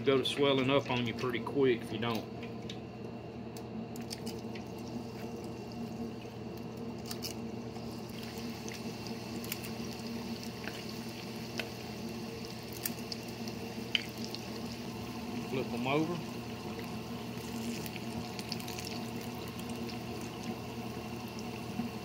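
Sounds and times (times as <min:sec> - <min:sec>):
hot oil sizzling and bubbling: 0:04.0 - 0:22.0.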